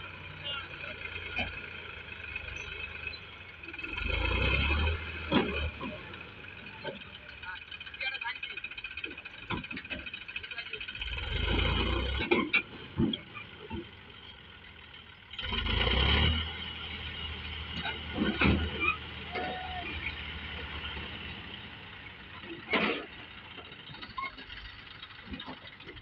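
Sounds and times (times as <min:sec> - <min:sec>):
tractor engine running: 0:00.0 - 0:26.0
knocks and clatters: 0:05.1 - 0:11.1, 0:12.0 - 0:14.4, 0:17.6 - 0:19.4, 0:20.0 - 0:26.0.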